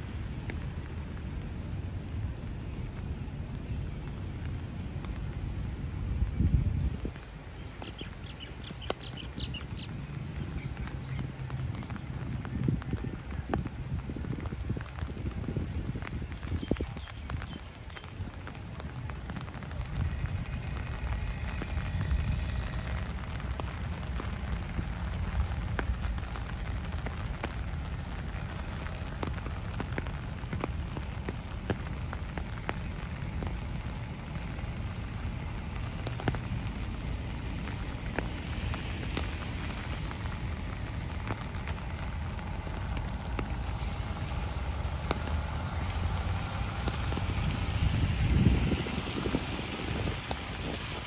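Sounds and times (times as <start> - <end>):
heavy rain: 0.0 - 51.0
raindrops ticking: 0.0 - 51.0
low rumble: 18.5 - 51.0.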